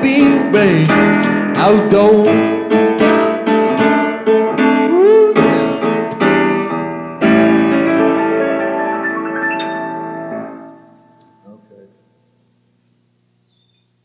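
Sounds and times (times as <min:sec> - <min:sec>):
piano playing slow blues: 0:00.0 - 0:11.9.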